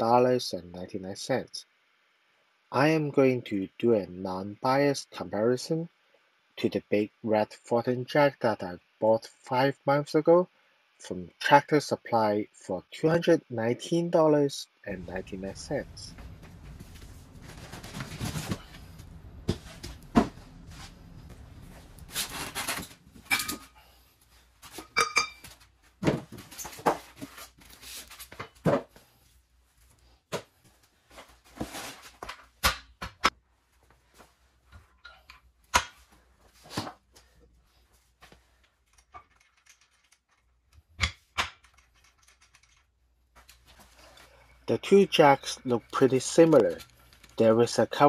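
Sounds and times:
cardboard sliding and rustling: 16.8 - 21.0.

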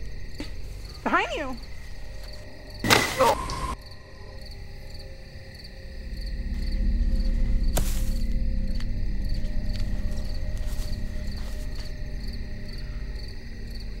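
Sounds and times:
crickets chirping: 0.0 - 14.0
low rumbling drone: 1.7 - 14.0
sharp hit: 2.8 - 3.8.

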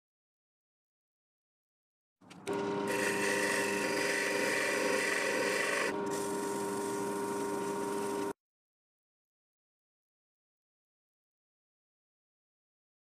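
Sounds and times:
drill press motor hum: 2.3 - 8.4
sandpaper rasping on spinning wood: 2.9 - 8.3.

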